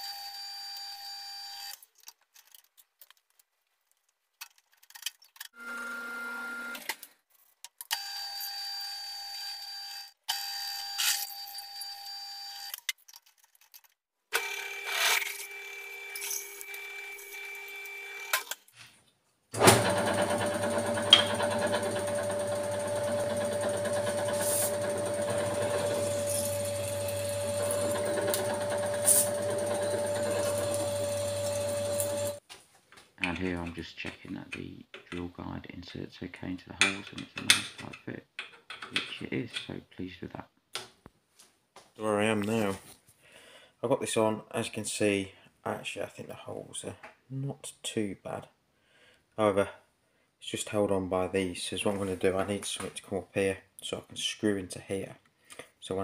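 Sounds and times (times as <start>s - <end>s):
pillar drill boring metal: 19.7s - 32.4s.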